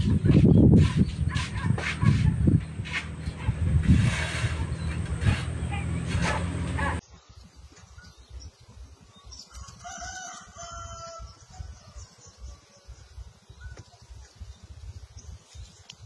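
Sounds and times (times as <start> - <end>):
low uneven rumble: 0.0 - 7.0
rooster crowing: 9.6 - 11.3.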